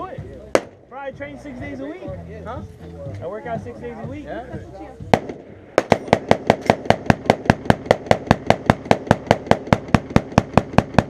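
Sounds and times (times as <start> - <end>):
rapid gunfire: 5.1 - 11.0.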